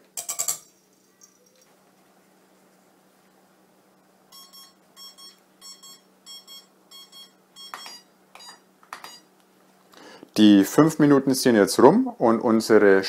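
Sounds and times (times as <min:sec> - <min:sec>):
timer double beeps: 0:04.4 - 0:09.2.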